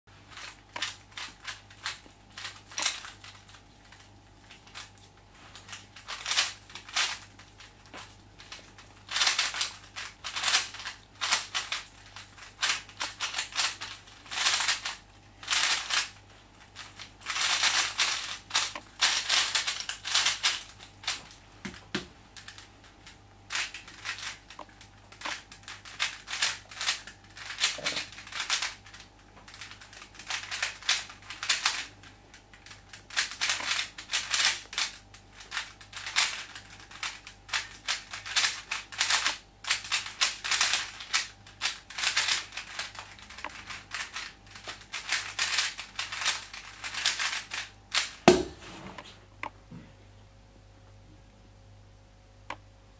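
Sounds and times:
speed cube clacking: 0.3 - 4.9, 5.7 - 7.7, 8.4 - 16.2, 16.8 - 22.6, 23.5 - 48.5
cube knocking on a mat: 48.3 - 49.0.

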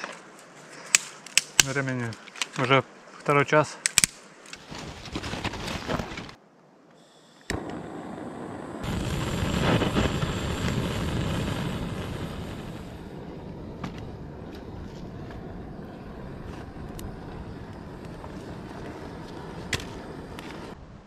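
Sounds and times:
fire crackling and popping: 0.8 - 2.6, 3.8 - 6.4, 7.5 - 20.8
wood fire hissing: 7.0 - 20.8
gas torch roaring: 7.4 - 20.8.

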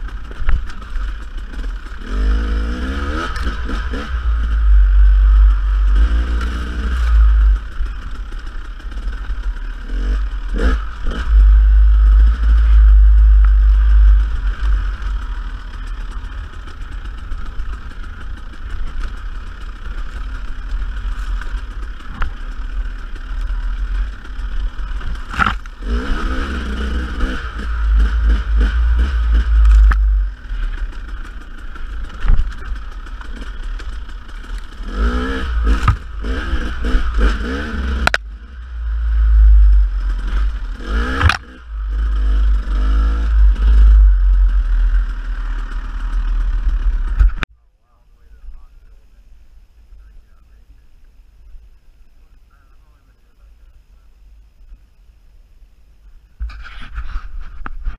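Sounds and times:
dirt bike engine revving: 0.0 - 47.4
low rumble: 0.0 - 57.9
bike knocks and clatter: 25.0 - 26.0.

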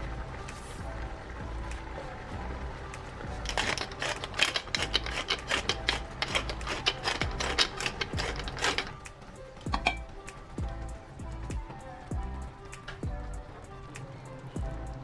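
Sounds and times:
soft background music: 0.0 - 15.0
spice grinder crunching: 3.4 - 9.0.

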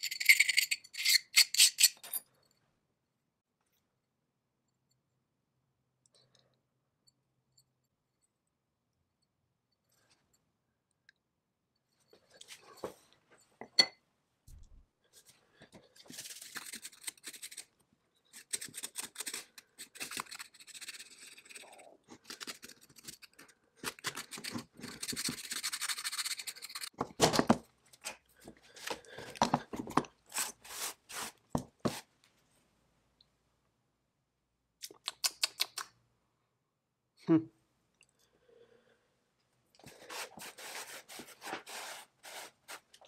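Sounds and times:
small parts scrubbed and scraped: 0.0 - 2.2, 15.2 - 27.0.

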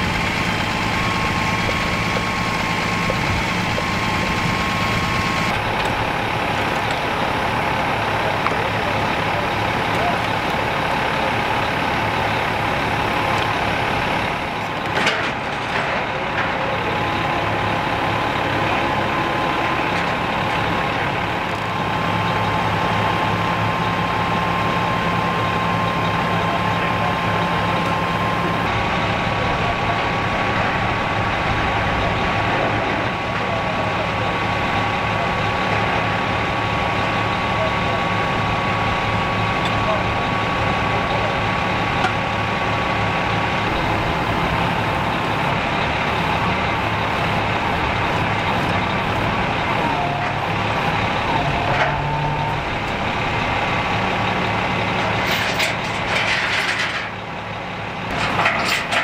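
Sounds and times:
hydraulic whine: 0.0 - 8.2
truck engine running: 0.0 - 59.0.

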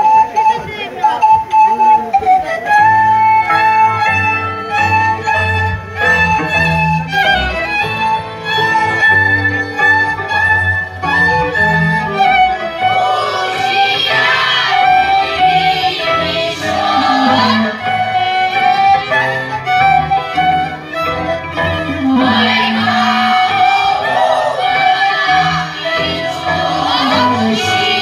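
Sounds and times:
fiddle folk dance music: 0.0 - 28.0
women singing together: 12.8 - 19.5, 22.0 - 28.0.

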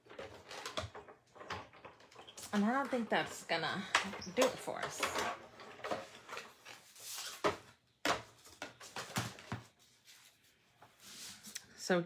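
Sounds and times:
paper rustling: 6.0 - 7.7.

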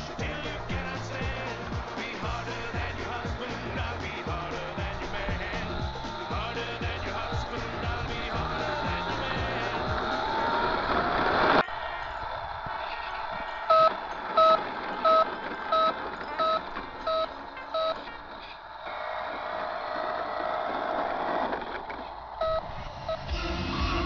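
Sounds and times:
electronic reversing beeper: 13.7 - 18.1.

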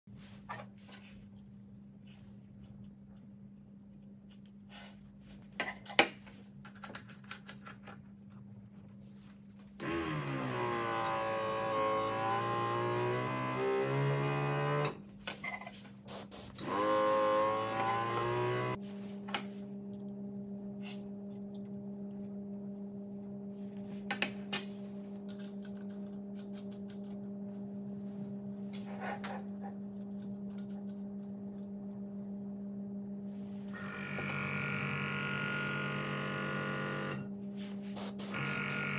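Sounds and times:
compressor humming: 9.8 - 15.0, 16.0 - 38.9
air hissing through airbrush: 16.1 - 17.2, 37.8 - 38.8.

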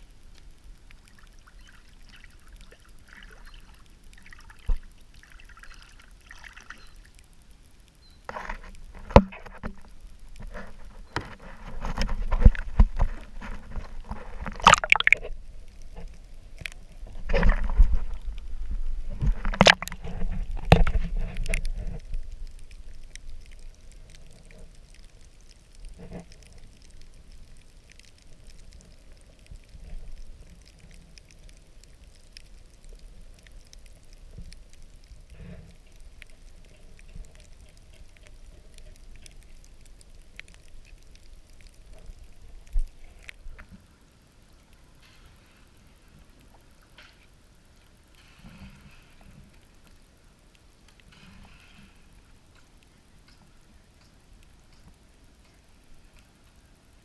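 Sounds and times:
water sloshing and splashing: 1.0 - 6.9, 8.3 - 18.3, 19.1 - 22.0.

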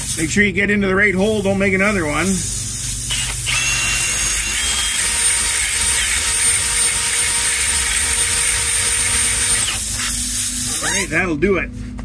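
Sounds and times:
cordless drill high whine: 2.3 - 11.2.

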